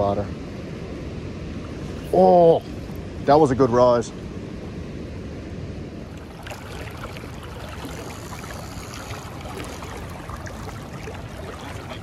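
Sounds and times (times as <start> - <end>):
river current rushing and splashing: 6.0 - 12.0.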